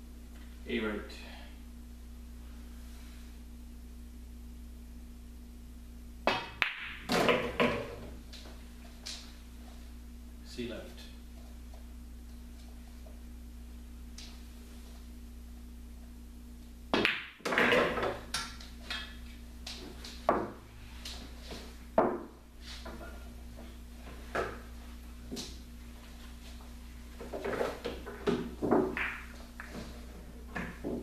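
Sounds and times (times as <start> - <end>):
pool cue striking ball: 6.2 - 8.2, 16.9 - 19.2, 20.2 - 20.7, 22.0 - 23.2, 27.4 - 31.0
billiard balls colliding: 6.2 - 9.4, 16.9 - 25.7, 27.1 - 31.0.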